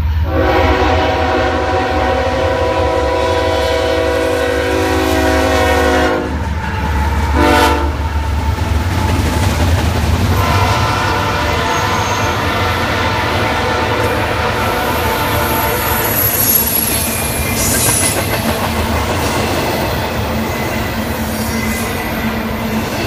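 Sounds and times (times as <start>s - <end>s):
rolling train cars: 0.0s - 23.0s
locomotive air horn blasts: 0.2s - 6.4s, 7.3s - 8.0s, 10.3s - 16.6s.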